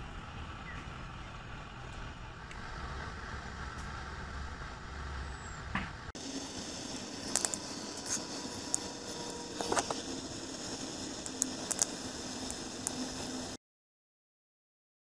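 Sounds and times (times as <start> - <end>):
low rumble and hiss: 0.0 - 13.6
wood fire crackling and popping: 6.0 - 13.6.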